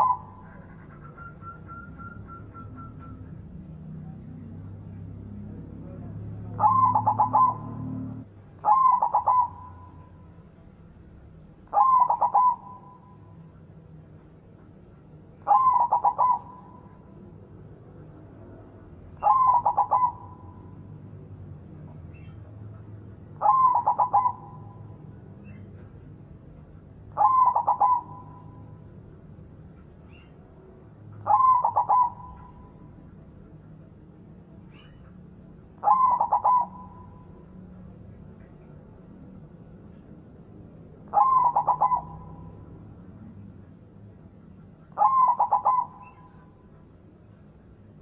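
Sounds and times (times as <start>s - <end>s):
dove cooing: 0.0s - 4.2s, 5.8s - 10.2s, 11.7s - 13.2s, 15.4s - 17.1s, 19.2s - 20.8s, 23.4s - 25.6s, 27.1s - 28.8s, 31.2s - 33.0s, 35.8s - 37.5s, 41.1s - 42.6s, 44.9s - 46.6s.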